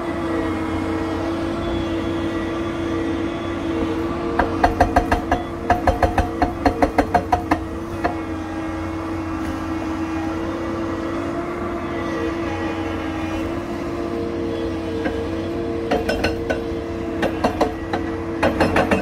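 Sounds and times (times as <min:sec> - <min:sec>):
diesel engine humming: 0:00.0 - 0:19.0
hydraulic breaker hammering rock: 0:04.4 - 0:08.4, 0:14.9 - 0:19.0.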